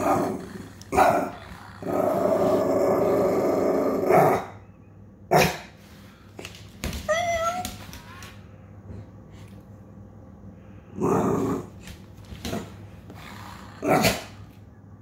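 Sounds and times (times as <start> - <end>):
dog grumbling: 0.0 - 4.5, 11.0 - 11.7, 13.1 - 14.4.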